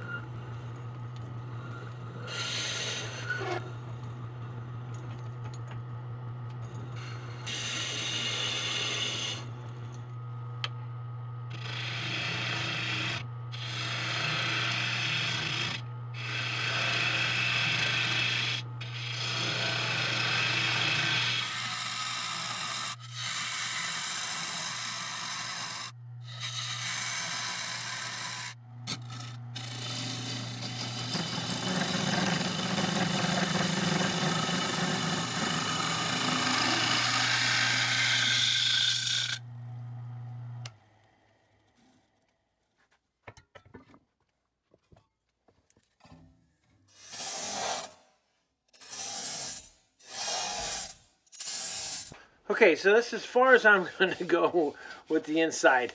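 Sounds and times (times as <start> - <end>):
turning tool scraping wood: 0.0 - 5.7, 6.5 - 10.1, 11.5 - 39.4, 51.4 - 55.9
wood lathe motor hum: 0.0 - 42.0, 52.8 - 55.8.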